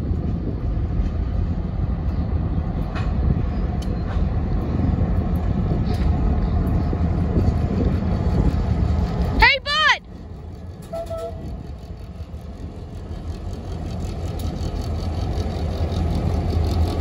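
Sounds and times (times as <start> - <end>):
diesel locomotives rumbling: 0.0 - 17.0.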